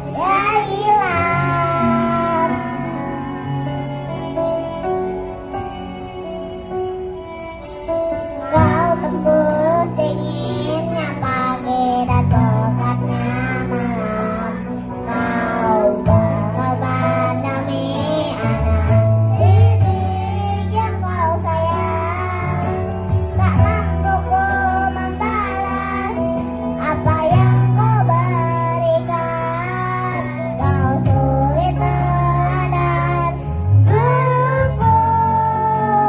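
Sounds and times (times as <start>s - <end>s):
children's choir singing: 0.0s - 3.4s, 8.4s - 22.7s
instrumental accompaniment: 0.0s - 36.0s.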